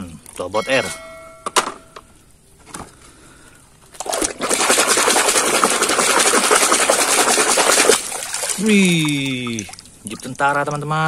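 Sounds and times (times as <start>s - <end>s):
hand splashing in water: 4.0s - 10.2s.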